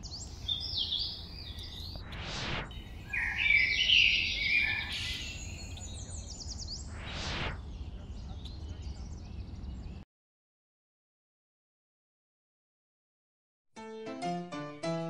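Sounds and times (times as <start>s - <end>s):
birds chirping and warbling: 0.0s - 10.0s
short whoosh: 1.9s - 3.8s, 6.8s - 7.7s.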